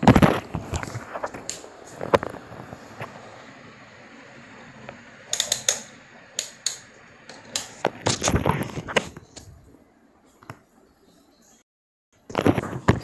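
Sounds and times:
rotary knob clicking: 0:04.9 - 0:07.8
knocks and rustling: 0:07.3 - 0:09.6.

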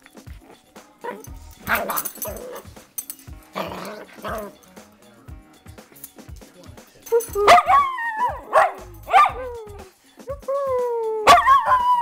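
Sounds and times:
dog barking: 0:01.0 - 0:02.7, 0:07.4 - 0:09.6, 0:11.3 - 0:12.0
dog yelping: 0:01.0 - 0:02.7, 0:03.6 - 0:04.5, 0:07.1 - 0:12.0
dog whining: 0:07.1 - 0:12.0.

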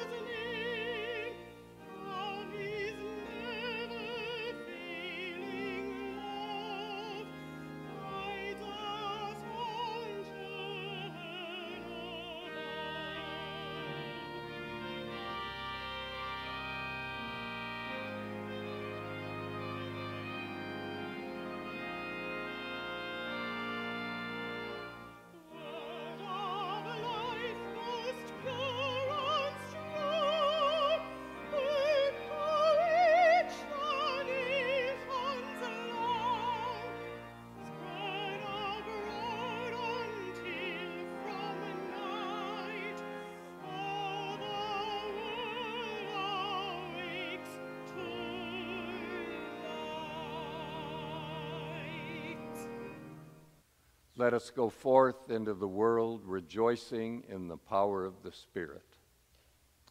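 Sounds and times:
woman singing operatically: 0:00.0 - 0:01.3, 0:02.0 - 0:07.3, 0:08.0 - 0:13.6, 0:25.5 - 0:36.9, 0:37.8 - 0:43.0, 0:43.6 - 0:52.7
organ chords: 0:00.0 - 0:58.9.

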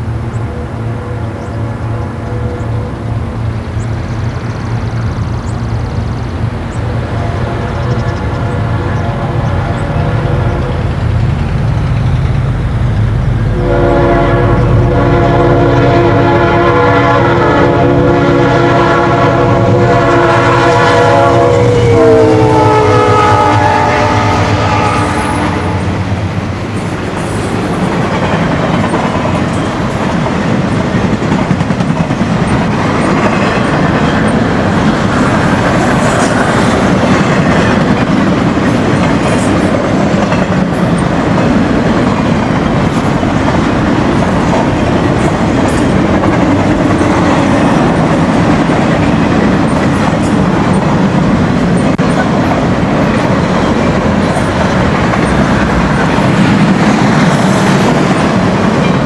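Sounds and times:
freight train wheels rumbling: 0:00.0 - 0:59.0
wheels clacking over rail joints: 0:24.1 - 0:59.0.

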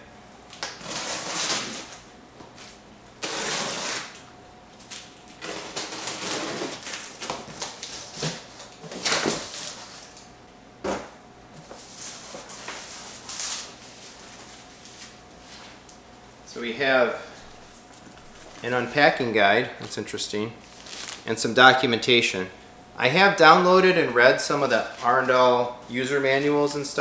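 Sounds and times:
cardboard rustling and scraping: 0:11.6 - 0:15.8.

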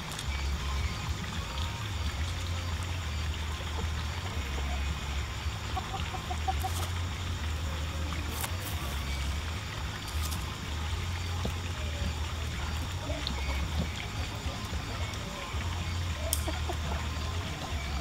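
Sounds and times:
chickens clucking: 0:02.2 - 0:18.0.

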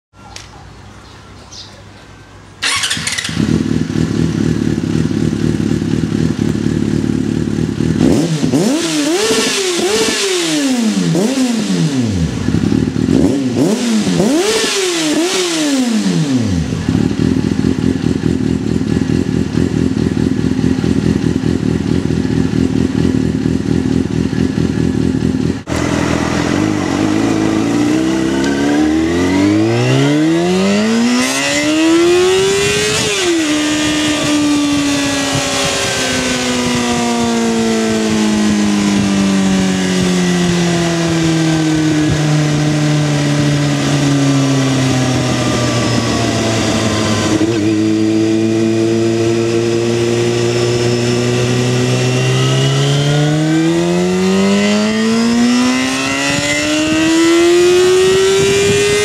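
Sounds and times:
motorcycle engine idling: 0:02.6 - 0:08.1, 0:16.5 - 0:28.8
motorcycle accelerating: 0:02.6 - 0:59.0
motorcycle engine revving: 0:02.6 - 0:59.0
motorcycle engine starting: 0:02.6 - 0:59.0.

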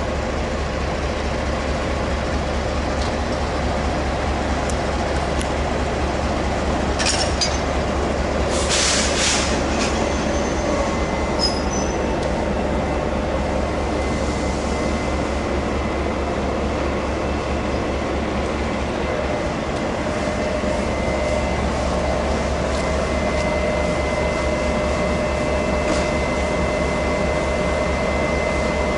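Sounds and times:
train wheels rumbling on rails: 0:00.0 - 0:28.9
high wheel squeals: 0:08.7 - 0:12.1.

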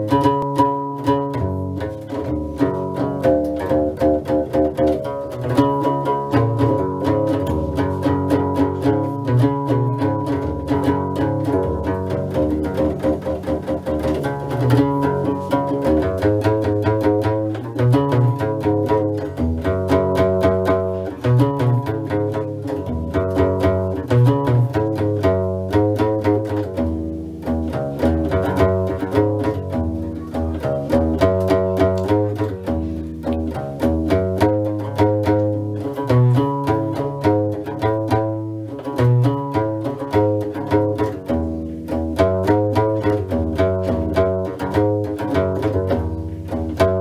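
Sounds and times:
bass lute plucking: 0:00.0 - 0:47.0.

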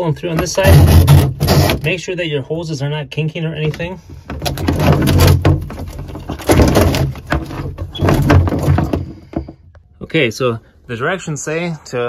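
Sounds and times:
hoses rasping against wood edge: 0:00.3 - 0:01.9.

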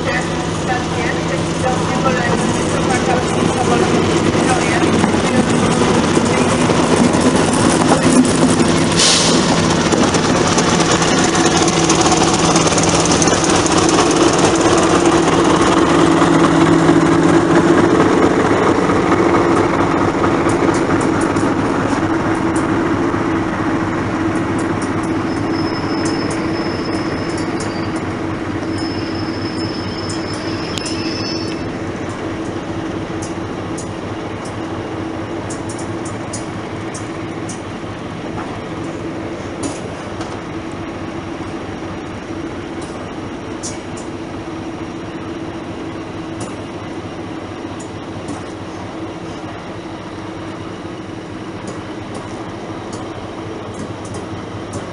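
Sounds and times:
diesel locomotive engine running: 0:00.0 - 0:54.9
passenger coaches rolling past: 0:00.0 - 0:54.9
clicking train wheels: 0:00.2 - 0:40.5, 0:41.5 - 0:47.0, 0:47.7 - 0:54.9
high brake squeal: 0:25.1 - 0:31.8.

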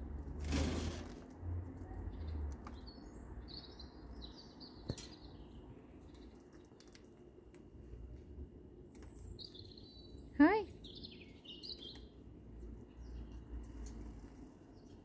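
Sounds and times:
small birds chirping: 0:01.8 - 0:07.0, 0:08.9 - 0:15.0.

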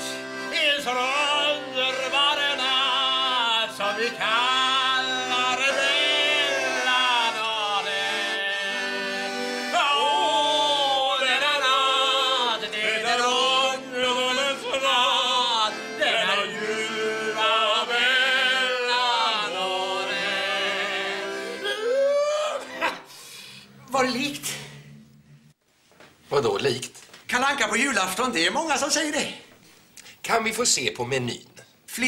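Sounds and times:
accordion bass notes: 0:00.0 - 0:23.0
men singing mock-operatic: 0:00.0 - 0:23.0.

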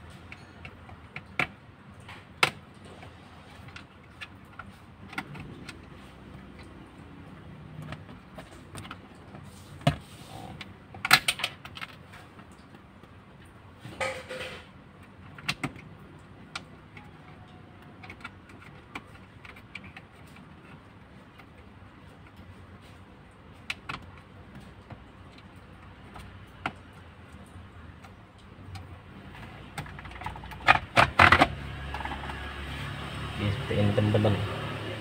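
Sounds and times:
tools clicking on plastic: 0:15.0 - 0:21.6
plastic clatter: 0:28.7 - 0:32.4.

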